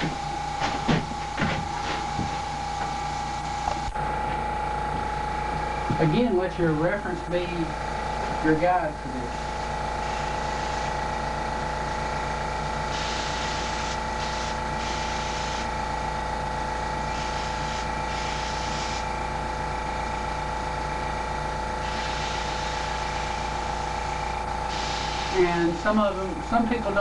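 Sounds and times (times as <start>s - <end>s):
motor hum: 0.0s - 27.0s
airbrush spraying hisses: 9.3s - 11.0s, 12.9s - 15.7s, 17.1s - 19.0s, 21.8s - 24.0s, 24.7s - 25.6s.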